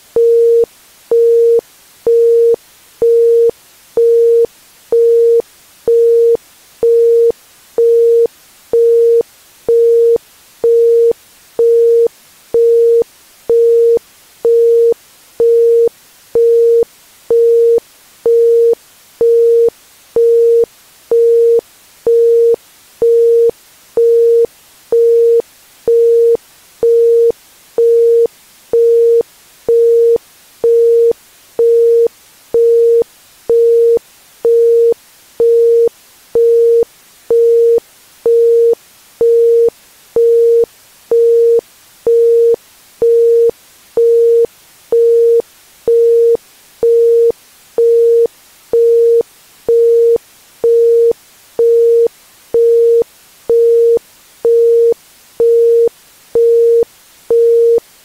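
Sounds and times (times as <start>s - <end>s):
faint hiss: 0.0s - 58.0s.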